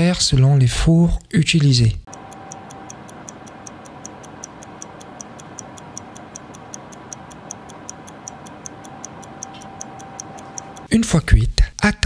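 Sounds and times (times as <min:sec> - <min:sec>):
oven hum: 0:01.0 - 0:11.1
mechanical timer ticking: 0:02.1 - 0:10.9.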